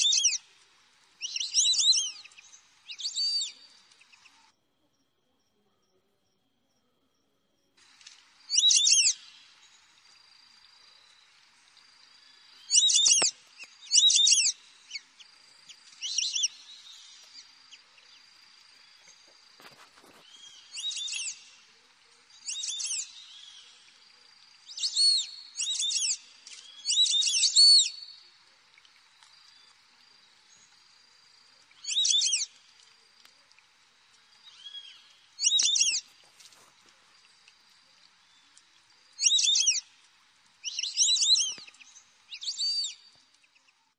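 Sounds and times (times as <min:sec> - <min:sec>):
high chirping animal calls: 0:12.7 - 0:15.0, 0:39.2 - 0:39.8.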